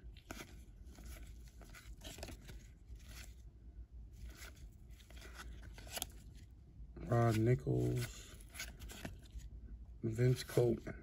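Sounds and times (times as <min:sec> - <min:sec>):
cards sliding and flicking: 0:00.2 - 0:03.4, 0:04.2 - 0:06.3, 0:07.2 - 0:09.4.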